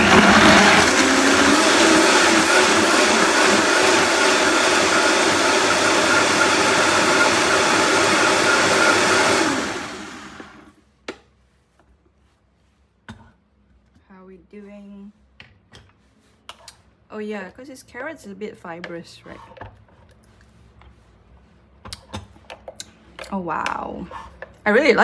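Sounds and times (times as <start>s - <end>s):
blender whirring: 0.0s - 10.7s.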